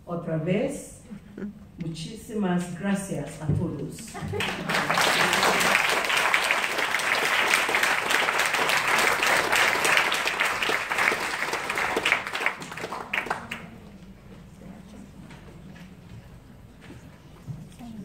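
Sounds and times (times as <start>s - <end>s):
audience applauding: 4.1s - 14.0s.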